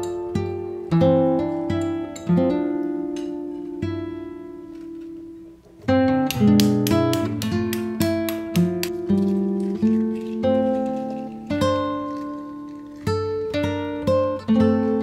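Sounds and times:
plucked acoustic guitar: 0:00.0 - 0:15.0.

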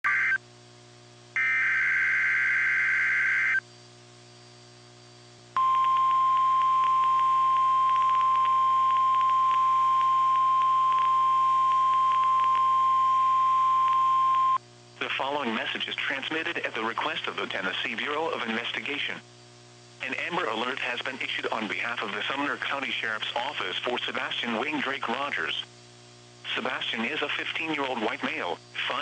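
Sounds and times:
steady warning tone: 0:01.4 - 0:03.6, 0:05.6 - 0:14.6
warbling digital data bursts: 0:01.4 - 0:03.6.

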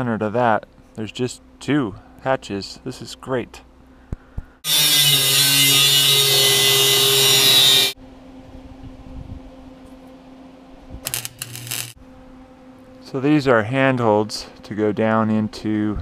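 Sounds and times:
low steady hum: 0:00.0 - 0:04.6, 0:08.0 - 0:16.0
welding arc crackling: 0:11.0 - 0:12.0.

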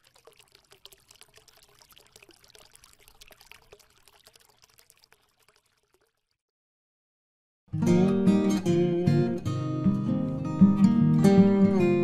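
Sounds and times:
faint fizzing water pouring: 0:00.0 - 0:06.4.

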